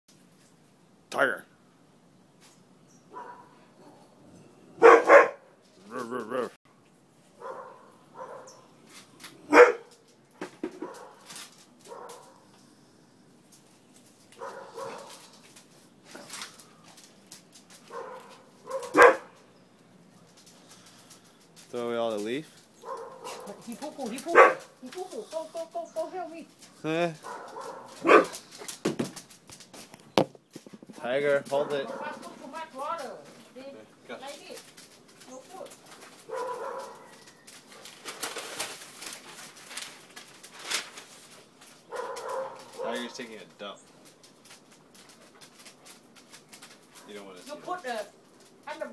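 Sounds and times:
brief rustle: 13.5s - 19.1s, 34.3s - 43.2s.

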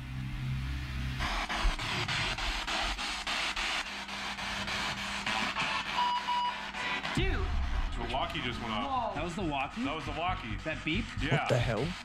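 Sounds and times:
radio static: 5.3s - 12.0s.

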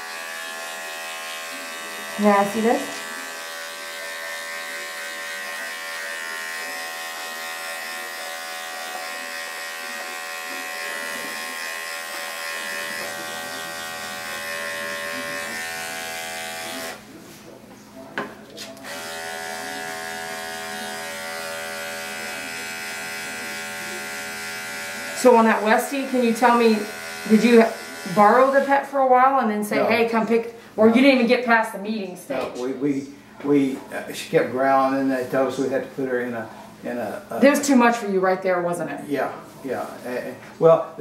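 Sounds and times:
electric clippers buzzing: 0.0s - 17.0s, 18.8s - 28.9s.

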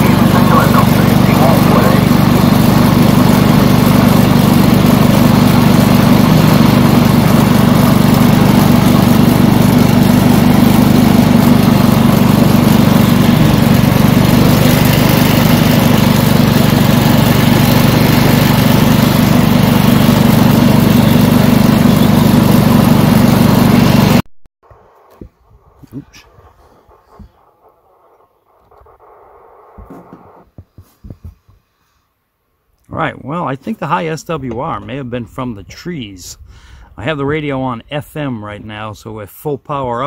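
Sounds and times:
tractor engine droning: 0.0s - 31.5s, 32.8s - 40.0s.

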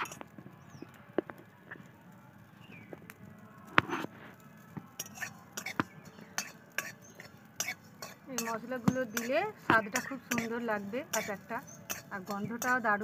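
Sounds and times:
metal spatula scraping pan: 5.0s - 5.7s, 11.2s - 12.8s.

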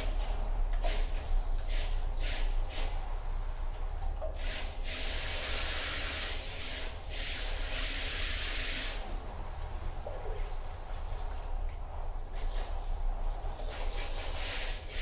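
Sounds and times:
hose spray hissing into drum: 0.0s - 3.4s, 4.1s - 15.0s
steady low hum: 0.0s - 5.5s, 8.8s - 14.9s.

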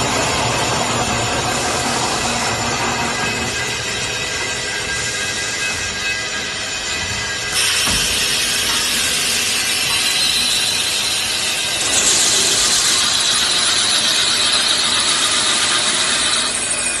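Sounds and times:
high whine: 0.0s - 15.4s
drilling machine running: 0.0s - 17.0s
hiss: 7.6s - 16.4s.

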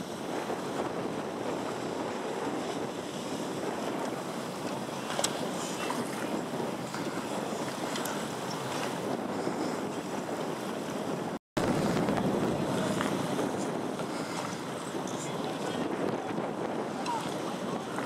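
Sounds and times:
choppy water waves: 0.0s - 18.0s
wind on microphone: 0.0s - 18.0s.

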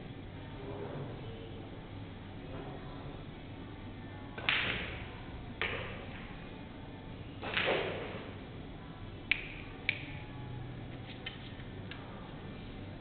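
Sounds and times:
cue and balls clacking: 4.4s - 6.4s, 7.4s - 8.4s, 9.3s - 10.2s, 10.9s - 12.1s
ball click: 9.3s - 10.2s.

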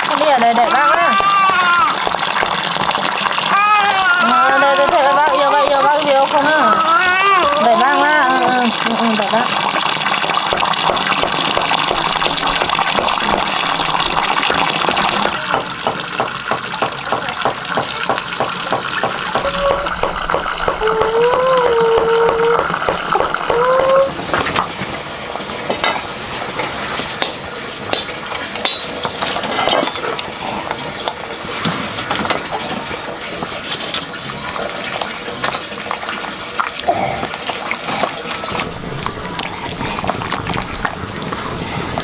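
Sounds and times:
water running and splashing: 0.0s - 42.0s
high gliding call: 19.4s - 24.2s.

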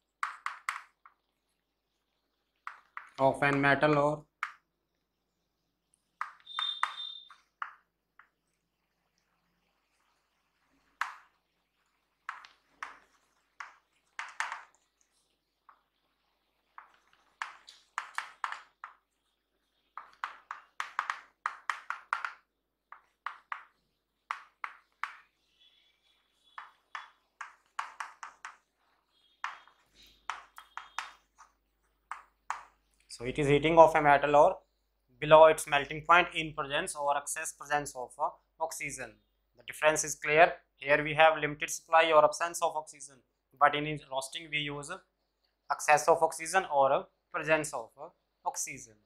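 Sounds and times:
chalk tapping and scraping on chalkboard: 0.2s - 1.3s, 2.6s - 3.8s, 6.2s - 8.4s, 11.0s - 11.3s, 12.2s - 33.1s.

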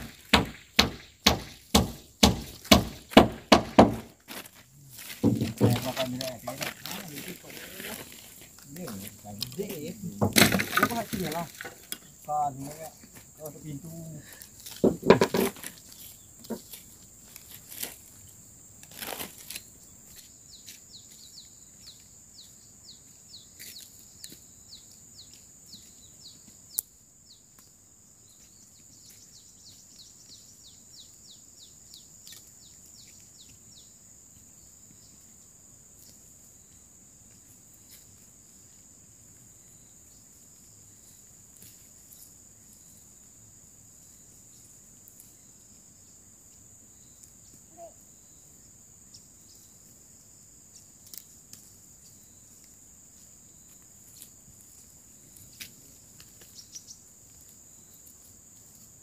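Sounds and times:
dry brush rustling: 0.0s - 20.8s
high insect drone: 0.0s - 59.0s.

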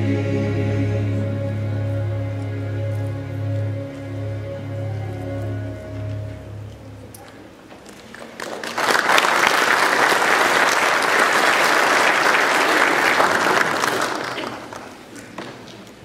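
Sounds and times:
congregation applauding: 7.8s - 15.2s.

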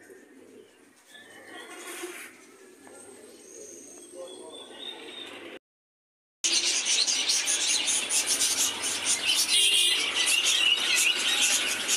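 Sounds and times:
budgerigars chirping: 6.5s - 11.9s.

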